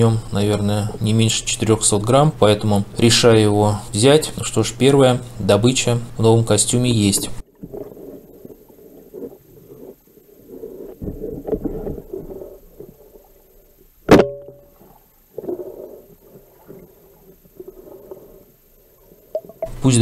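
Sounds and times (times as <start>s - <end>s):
muffled underwater noise: 0.0s - 8.1s
speargun firing underwater: 14.1s - 14.8s.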